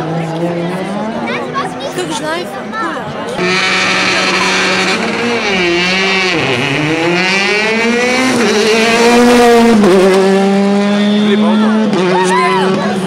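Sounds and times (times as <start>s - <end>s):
rally car engine passing: 3.3s - 13.0s.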